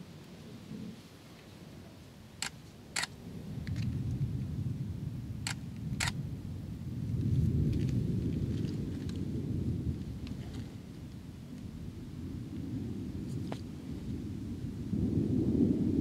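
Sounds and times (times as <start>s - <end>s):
thunder rumbling: 1.6s - 16.0s
camera shutter clicks: 2.4s - 3.1s, 5.5s - 6.2s.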